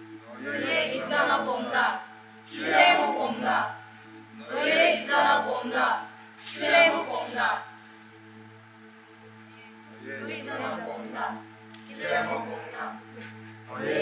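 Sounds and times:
group of voices chanting: 0:00.3 - 0:03.8, 0:04.4 - 0:07.7, 0:10.0 - 0:14.0.

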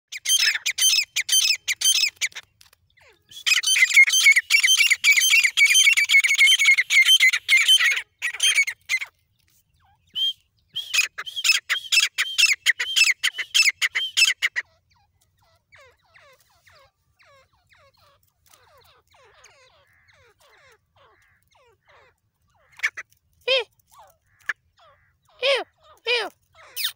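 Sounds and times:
bird calling shrill repeated notes: 0:00.1 - 0:09.1, 0:09.8 - 0:26.9.

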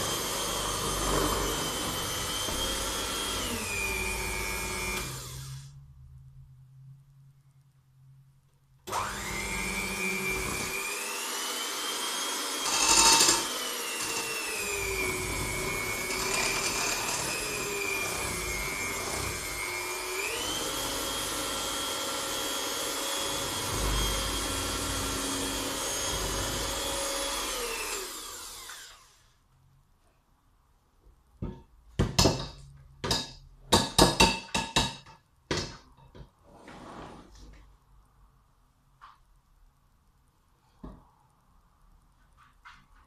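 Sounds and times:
electric mixer motor running: 0:00.0 - 0:05.7, 0:08.9 - 0:29.1
mixer rattle: 0:10.3 - 0:28.4.

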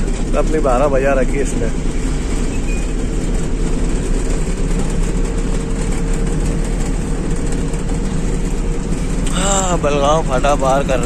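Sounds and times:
truck diesel engine drone: 0:00.0 - 0:11.0.

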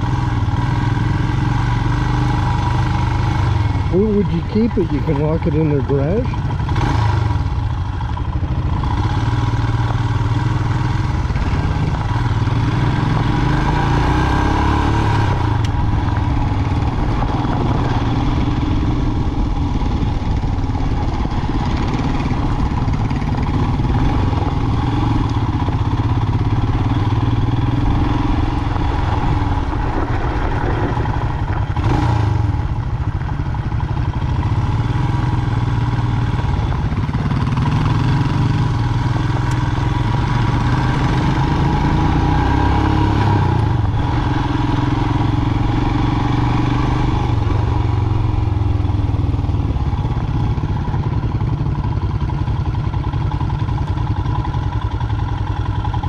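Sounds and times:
motorcycle engine running: 0:00.0 - 0:56.0
wind noise: 0:15.0 - 0:24.9, 0:27.6 - 0:34.0
tyres on gravel: 0:27.4 - 0:33.9.

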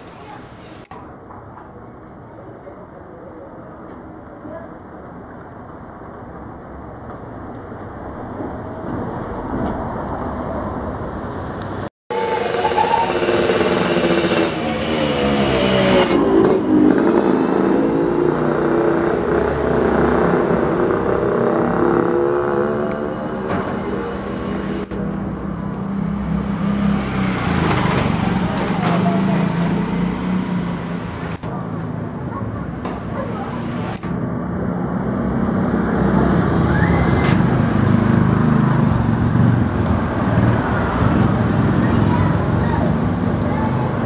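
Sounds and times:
motorcycle engines running: 0:11.6 - 0:44.0
short rising squeal: 0:12.1 - 0:16.4, 0:36.4 - 0:37.6.

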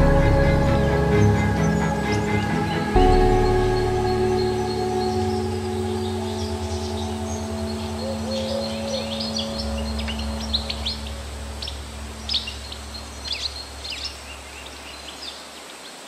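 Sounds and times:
low sustained music notes: 0:00.0 - 0:15.8
birds chirping: 0:00.0 - 0:16.0
steady background hiss: 0:00.8 - 0:16.0.

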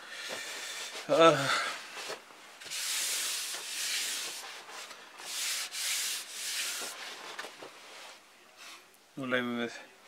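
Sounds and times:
sandpaper rubbing on plastic: 0:02.7 - 0:07.2.

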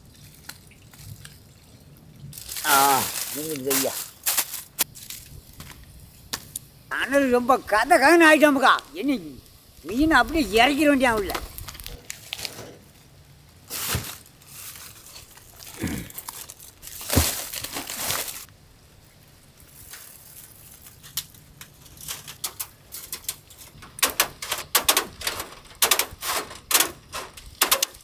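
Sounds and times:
foil and mesh crinkling: 0:02.4 - 0:05.9, 0:10.0 - 0:13.0, 0:13.6 - 0:18.5, 0:19.7 - 0:28.0.

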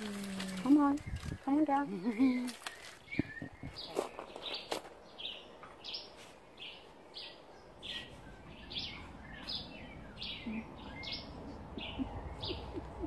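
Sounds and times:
bird chirping: 0:00.2 - 0:13.0.

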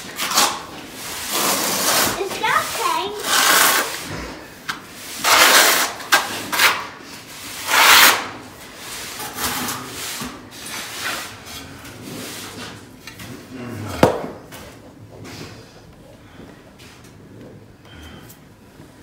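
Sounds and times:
trowel scraping mortar: 0:00.0 - 0:04.1, 0:05.0 - 0:11.4.

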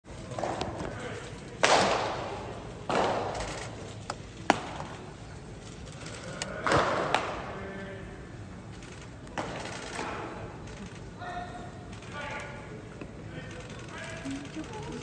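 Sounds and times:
baseballs smacking into mitts: 0:01.6 - 0:03.4, 0:04.1 - 0:05.0, 0:06.5 - 0:07.5.

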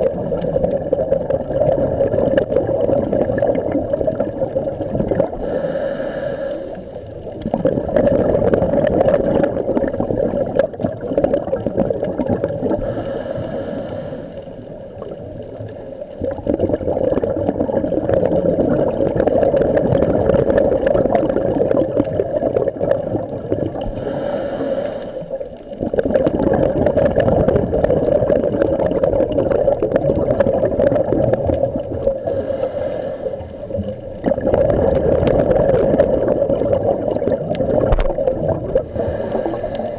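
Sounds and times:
gurgling exhaled bubbles: 0:00.0 - 0:39.9
regulator inhale hiss: 0:05.4 - 0:07.3, 0:12.8 - 0:15.2, 0:23.8 - 0:25.6, 0:32.0 - 0:34.2, 0:38.8 - 0:39.9.

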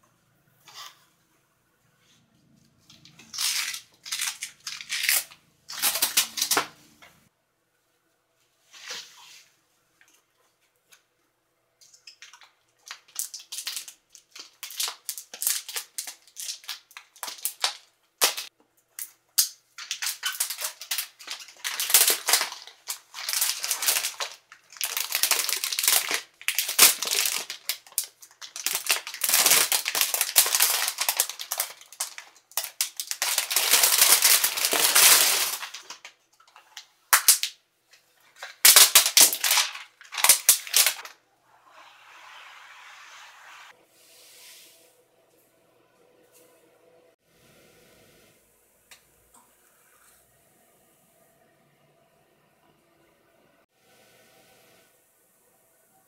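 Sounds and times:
plastic film rustling and crinkling: 0:02.8 - 0:06.8, 0:12.2 - 0:18.5, 0:19.8 - 0:41.2.

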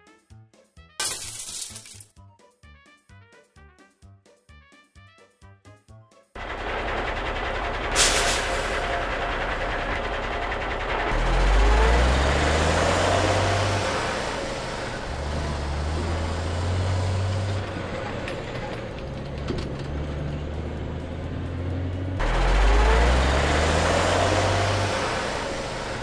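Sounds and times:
low engine drone: 0:06.4 - 0:26.0.

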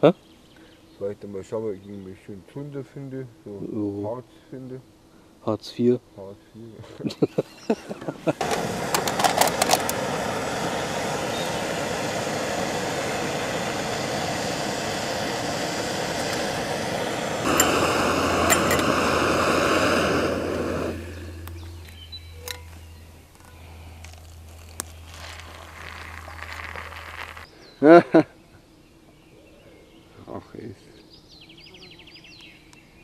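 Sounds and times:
gas stove burner hissing: 0:07.2 - 0:23.4.

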